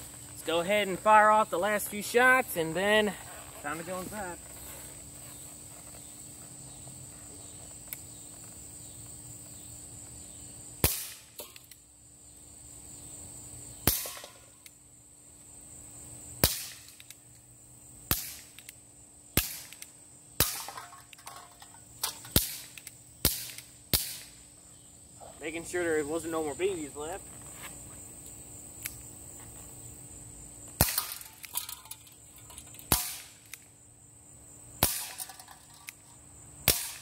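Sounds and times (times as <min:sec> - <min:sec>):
bb revolver pops: 0:10.8 - 0:11.8, 0:13.8 - 0:14.4, 0:16.4 - 0:17.2, 0:18.1 - 0:18.8, 0:19.4 - 0:21.4, 0:22.0 - 0:24.3, 0:30.8 - 0:32.0, 0:32.8 - 0:33.6, 0:34.8 - 0:36.0, 0:36.6 - 0:37.0.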